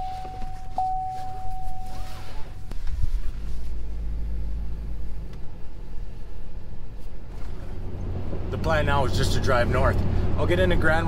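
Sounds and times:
steady high tone: 0.0 - 2.7.

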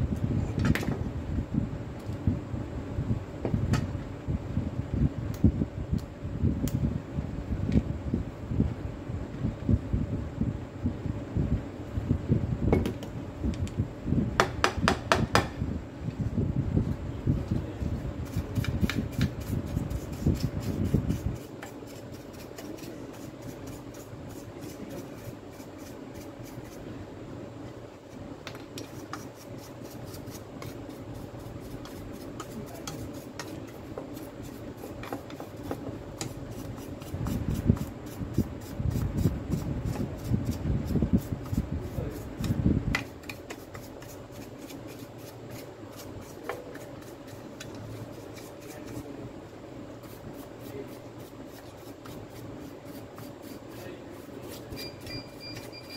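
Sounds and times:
wire brush scrubbing plastic: 18.2 - 26.8.

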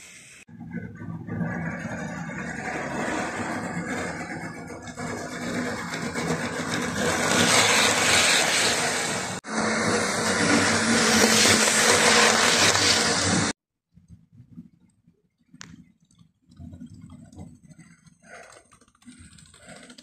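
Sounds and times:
train wheels on track: 1.2 - 13.6
model train motor whirring: 1.6 - 13.6.

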